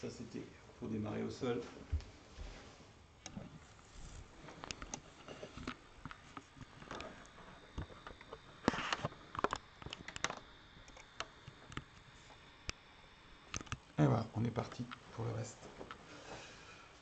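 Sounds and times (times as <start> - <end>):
fabric rustling: 1.8 - 5.6.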